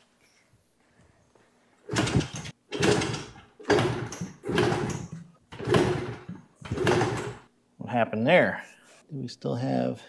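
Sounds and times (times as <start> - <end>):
dirt bike kick-start clatter: 1.9 - 7.4.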